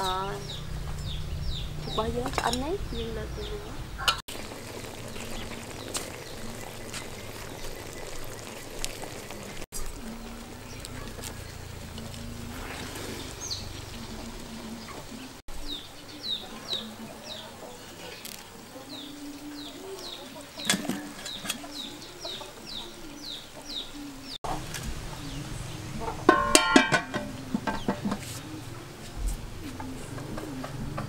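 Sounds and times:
metal fork clinking on pot: 26.3 - 27.9.

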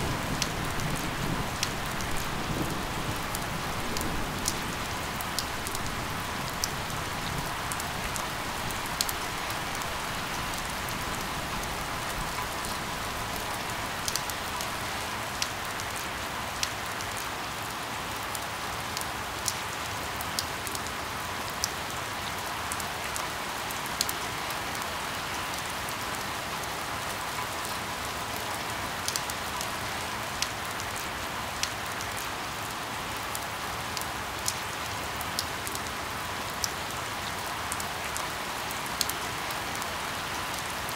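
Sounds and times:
steady rain hiss: 0.0 - 40.9
raindrops ticking: 0.2 - 17.3.

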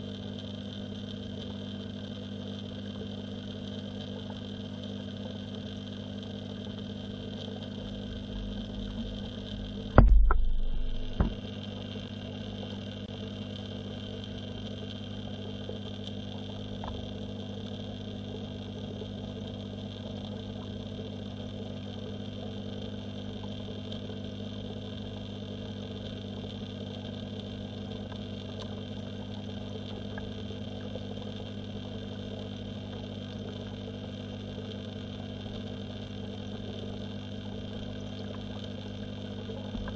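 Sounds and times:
pond pump humming underwater: 0.0 - 39.9
loud knock with low rumble: 9.7 - 11.5.

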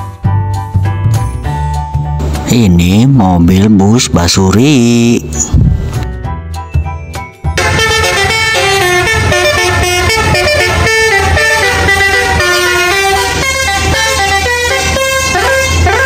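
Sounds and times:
bus engine hum: 7.6 - 16.0
musical air horn melody: 7.6 - 16.0.

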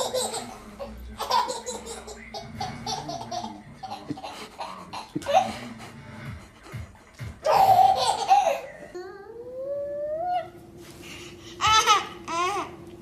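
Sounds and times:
baby laughing: 0.0 - 5.6, 7.4 - 9.0, 11.6 - 12.8.

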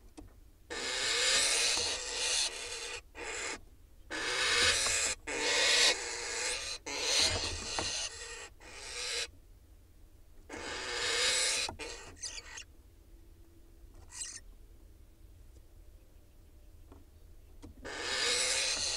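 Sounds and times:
owl rasping hisses: 17.9 - 18.9.

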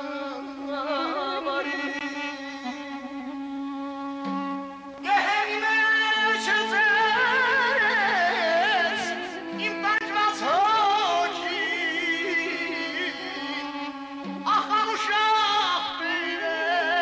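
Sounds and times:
wind instrument melody: 0.0 - 10.7.

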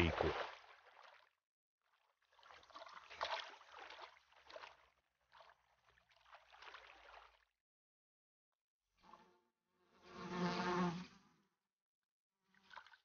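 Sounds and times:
water splashing and trickling: 0.0 - 7.5, 12.4 - 13.0.

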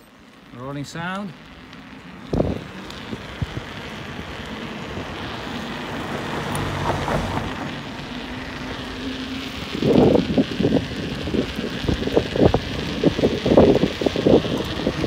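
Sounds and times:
bike tyres rolling on tarmac: 0.0 - 15.0.

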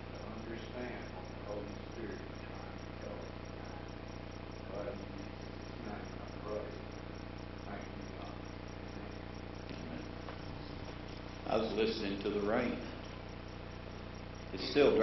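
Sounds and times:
steady hum and hiss: 0.0 - 15.0
man praying: 14.6 - 15.0.

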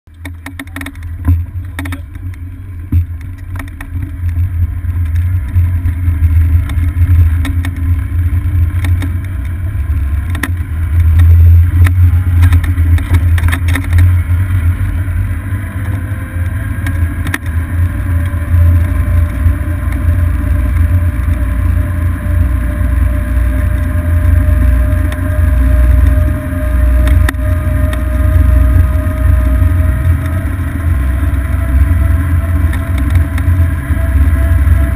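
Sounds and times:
clicks and rattles: 0.1 - 14.6
golf cart rumble: 0.1 - 34.9
electric motor whine: 3.4 - 34.9.

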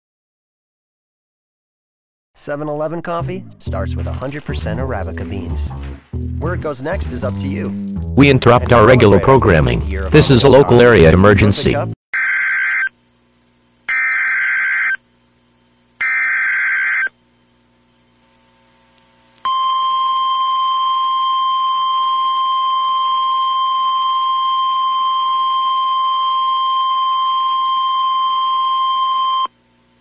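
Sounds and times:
steady attention tone: 3.7 - 12.0.

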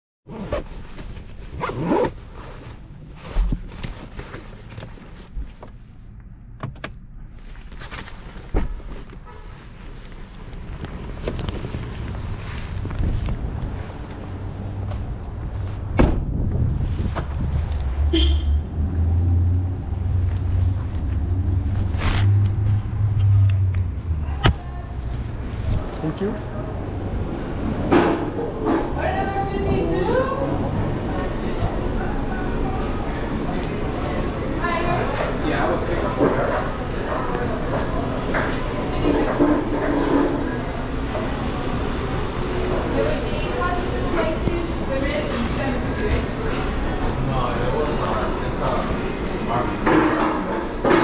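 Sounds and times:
wind buffeting microphone: 16.2 - 18.0.

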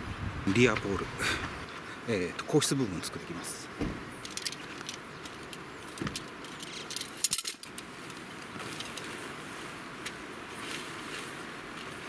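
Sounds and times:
tent poles clinking and clicking: 4.2 - 9.4.

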